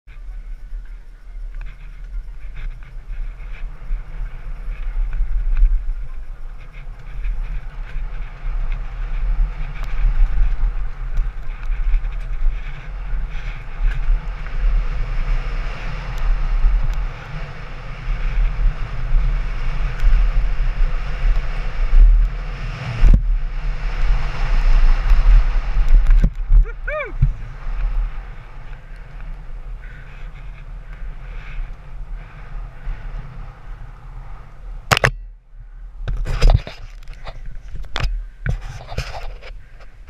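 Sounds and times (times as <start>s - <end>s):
bike clicks and knocks: 0.1s - 23.4s, 34.9s - 35.3s
tyres on leaves and gravel: 0.1s - 40.0s
wind buffeting microphone: 0.1s - 40.0s.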